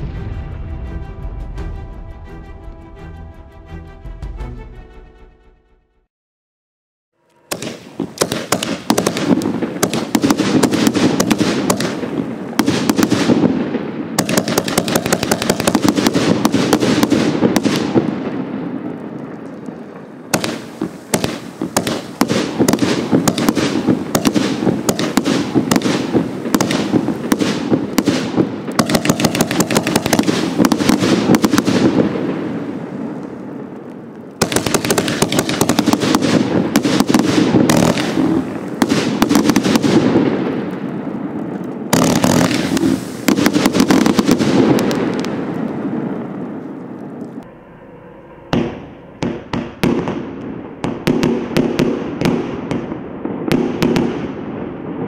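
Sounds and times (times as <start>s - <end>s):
firework cake shots and cracks: 7.5s - 13.6s, 14.2s - 18.1s, 20.3s - 32.0s, 34.3s - 40.8s, 41.4s - 45.8s.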